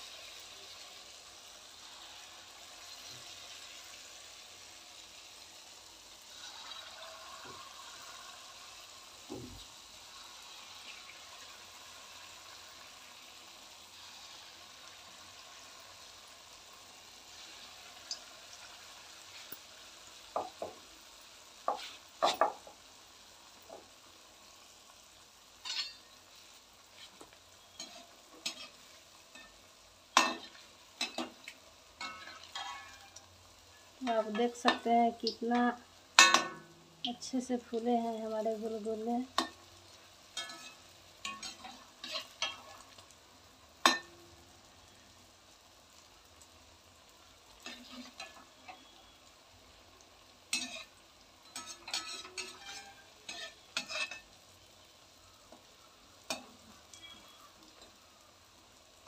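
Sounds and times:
fritters sizzling in oil: 0.0 - 59.0
metal spoon clinking on pan: 25.6 - 26.1, 27.7 - 29.6, 30.2 - 31.4, 32.0 - 33.3, 36.2 - 36.7, 39.3 - 39.6, 40.4 - 42.8, 43.8 - 44.2, 47.6 - 48.9, 50.5 - 54.3, 56.3 - 57.3.

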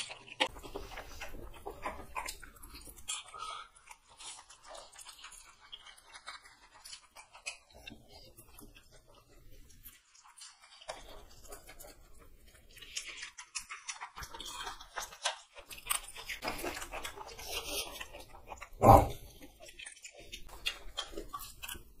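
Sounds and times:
wet chewing and smacking: 0.0 - 22.0
slurping noodles: 16.2 - 22.0.

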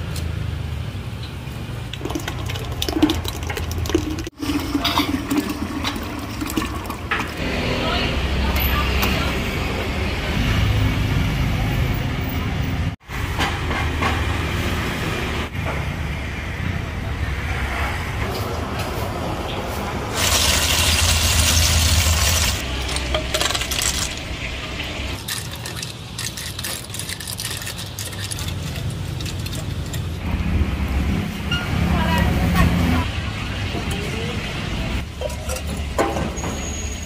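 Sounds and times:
snail shells clattering into a tub: 20.2 - 24.3
clinks of shells and utensils: 22.6 - 24.2.

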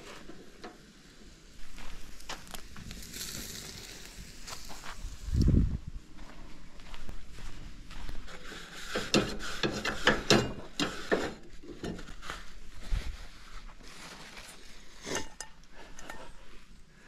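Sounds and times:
cooking gear clattering: 9.0 - 12.1.

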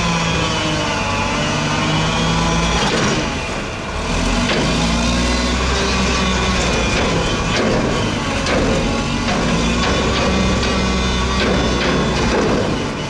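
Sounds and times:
garbage truck diesel engine running: 0.0 - 13.0
hydraulic forks lifting dumpster: 0.0 - 13.0
sharp knocks: 4.4 - 5.0, 6.8 - 13.0.

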